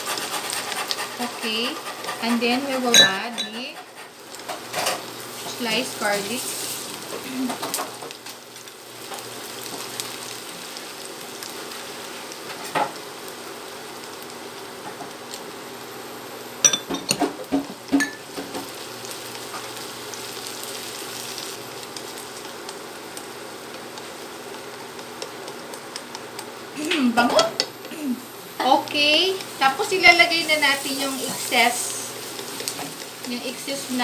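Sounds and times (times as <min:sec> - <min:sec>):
onion sizzling in oil: 0:00.0 - 0:34.0
chopsticks tapping against pan: 0:23.8 - 0:26.5.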